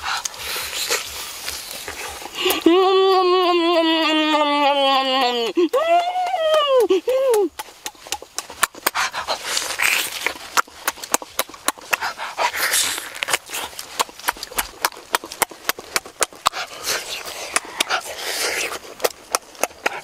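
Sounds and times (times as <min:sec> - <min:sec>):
heavy hissing mouth breaths: 0:00.0 - 0:02.6, 0:08.8 - 0:10.4, 0:11.8 - 0:14.0, 0:16.4 - 0:19.0
man chewing and lip-smacking: 0:00.0 - 0:20.0.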